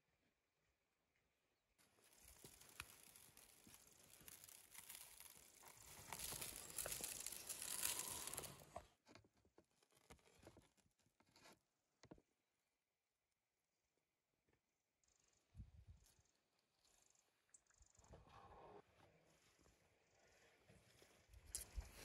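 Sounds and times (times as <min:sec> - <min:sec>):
salt pattering hiss: 0:01.9 - 0:08.7.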